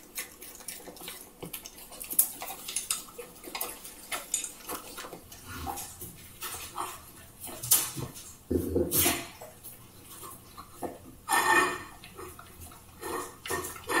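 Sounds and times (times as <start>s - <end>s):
dog licking and chewing: 0.0s - 8.4s, 11.9s - 14.0s
plate scraping on tiles: 11.3s - 12.0s.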